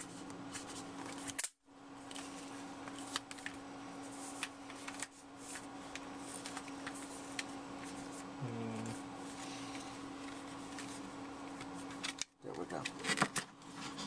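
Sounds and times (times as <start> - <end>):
packaging rustling and clicking: 10.2 - 13.5.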